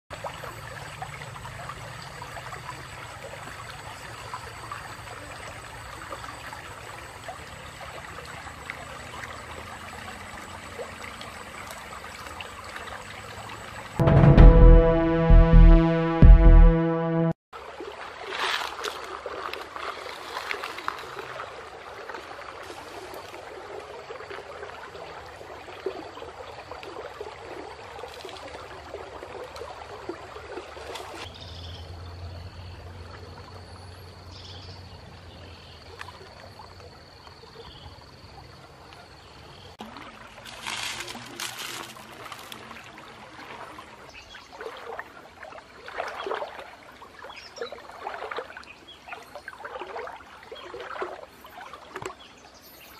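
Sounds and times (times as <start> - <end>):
river water sloshing and splashing: 0.1 - 14.1, 17.6 - 52.9
steady high tone: 14.0 - 17.4.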